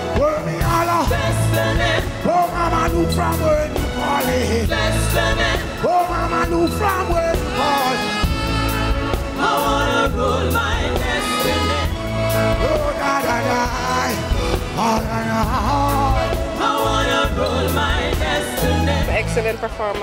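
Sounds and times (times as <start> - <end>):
man singing: 0.0 - 8.7, 11.2 - 17.8
reggae band playing: 0.0 - 20.0.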